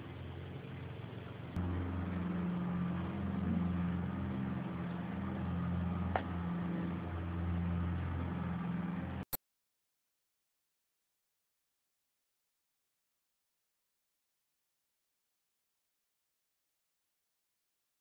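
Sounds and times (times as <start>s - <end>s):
low engine drone: 0.0s - 9.3s.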